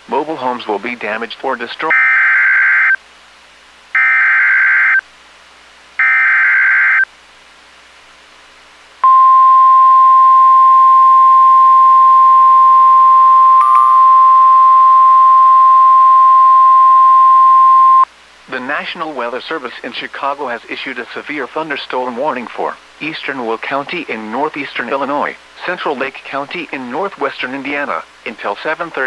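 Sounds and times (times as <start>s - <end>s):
steady warning alarm tone: 6.0s - 7.0s.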